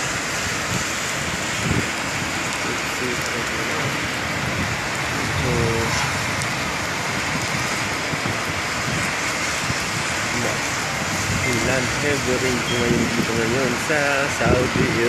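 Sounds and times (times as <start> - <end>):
heavy rain falling: 0.0 - 15.0.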